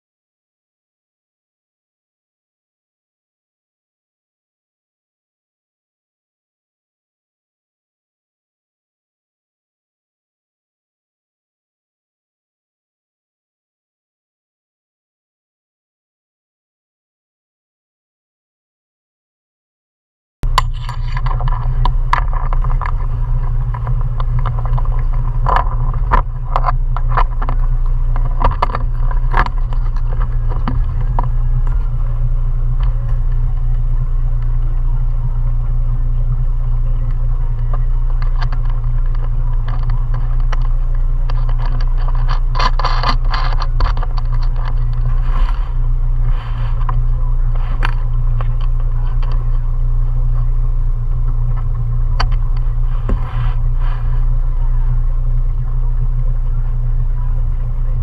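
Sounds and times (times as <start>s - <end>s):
small rattles and knocks: 20.4s - 34.8s, 36.8s - 54.2s
outboard motor running: 20.4s - 58.0s.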